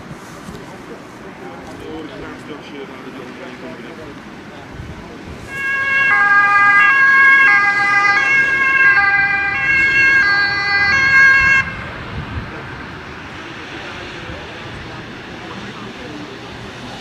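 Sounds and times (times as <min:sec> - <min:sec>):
ambulance two-tone siren: 0:05.5 - 0:12.1.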